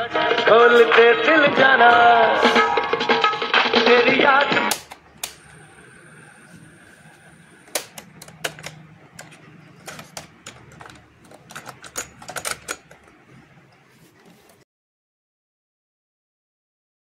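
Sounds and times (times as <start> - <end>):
cassette player plastic clicks: 7.7 - 13.0.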